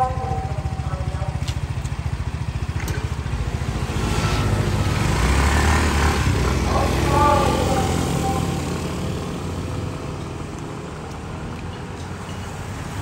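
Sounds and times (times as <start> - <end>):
scooter passing by: 0.0 - 11.6
scooter engine idling and revving: 0.0 - 13.0.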